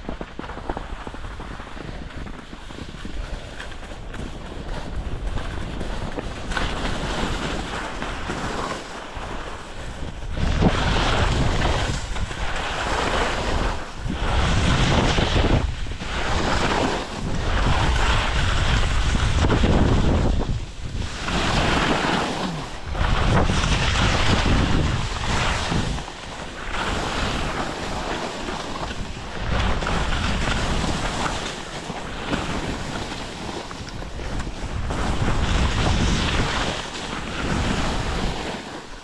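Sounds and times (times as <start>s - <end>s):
skis scraping over snow: 0.0s - 39.0s
wind on microphone: 0.0s - 39.0s.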